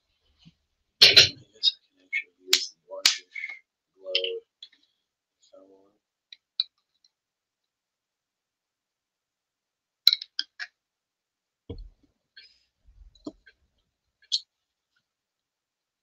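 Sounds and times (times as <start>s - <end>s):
soft knocks and thumps: 11.7s - 12.1s.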